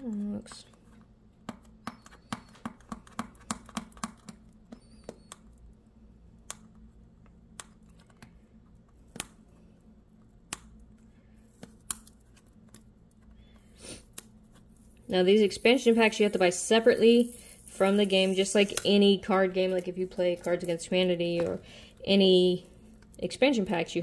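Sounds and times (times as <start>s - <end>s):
fingers picking at tape: 0.0s - 5.7s, 10.2s - 19.0s.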